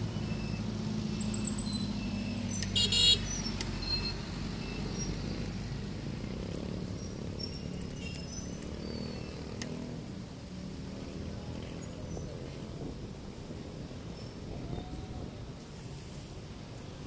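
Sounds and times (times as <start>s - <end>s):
road noise: 0.0s - 17.0s.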